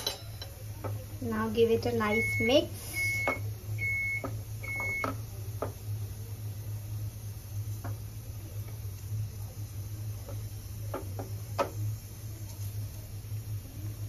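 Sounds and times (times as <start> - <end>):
steady low hum: 0.0 - 14.0
cooktop electronic beeps: 1.8 - 5.8
wooden spatula knocking on pan: 10.2 - 11.8.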